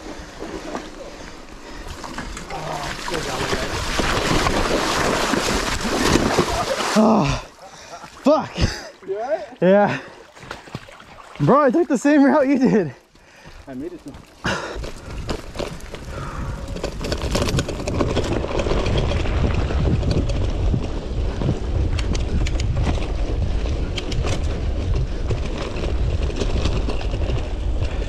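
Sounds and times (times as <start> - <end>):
bike rattles and clicks: 0.0 - 6.8, 9.6 - 28.0
tyres running over dirt: 0.0 - 28.0
wind buffeting microphone: 14.1 - 28.0.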